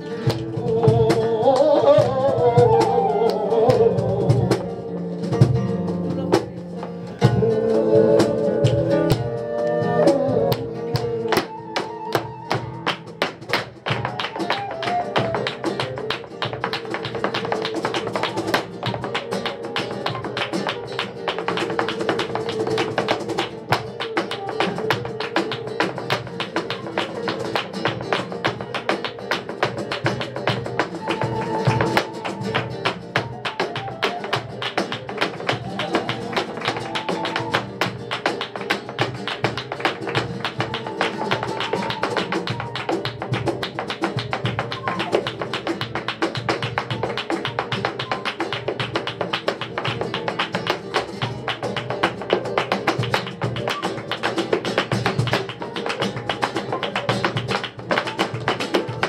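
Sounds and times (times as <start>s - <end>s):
dancer's footwork taps and stamps: 0.0s - 59.0s
flamenco guitar playing: 0.0s - 59.0s
person singing: 0.2s - 5.5s, 6.1s - 12.4s.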